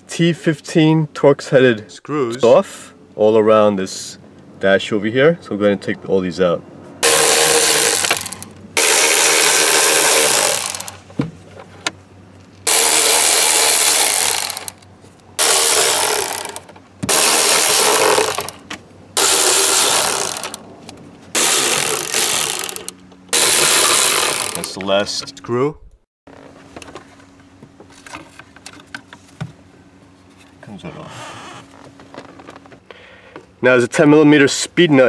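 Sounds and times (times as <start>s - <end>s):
power driver spinning screws: 7.0s - 11.0s, 12.6s - 14.8s, 15.4s - 18.6s, 19.2s - 20.6s, 21.4s - 24.8s.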